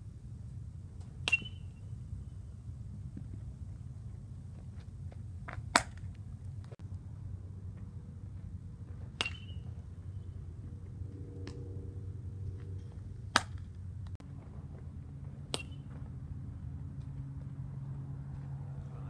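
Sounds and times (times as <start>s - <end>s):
low background rumble: 0.0s - 19.0s
metal bat hitting baseball: 1.2s - 1.8s, 9.2s - 9.7s.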